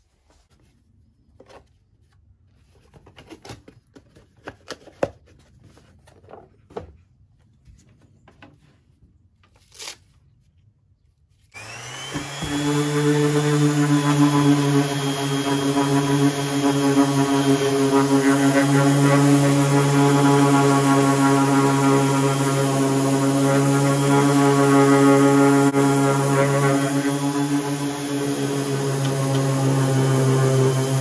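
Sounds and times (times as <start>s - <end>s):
orbital sander sanding wood: 11.6s - 31.0s.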